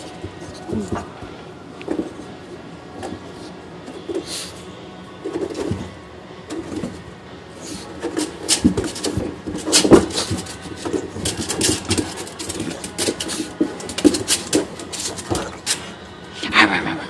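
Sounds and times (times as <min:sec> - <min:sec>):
dog scratching on mat: 0:07.6 - 0:15.9.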